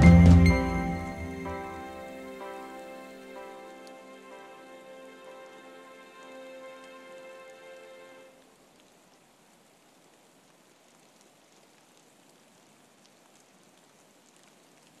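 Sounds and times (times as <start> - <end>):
music: 0.0 - 8.4
faint rain hiss: 0.0 - 15.0.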